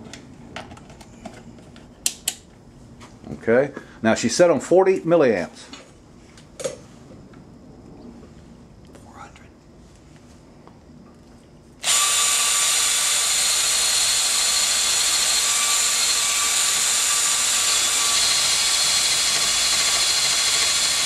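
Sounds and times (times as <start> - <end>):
drill with wire brush whirring: 11.8 - 21.0.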